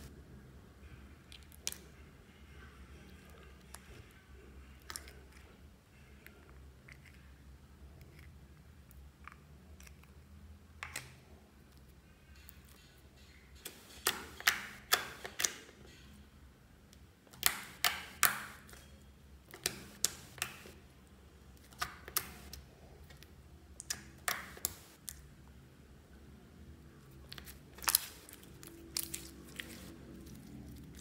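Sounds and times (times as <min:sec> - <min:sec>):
fingers poking sticky slime: 0:17.3 - 0:18.7, 0:23.8 - 0:25.0.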